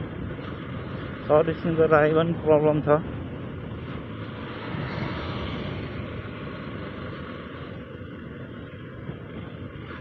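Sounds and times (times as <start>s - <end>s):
motorcycle engine running: 0.0s - 10.0s
wind and road noise: 0.0s - 10.0s.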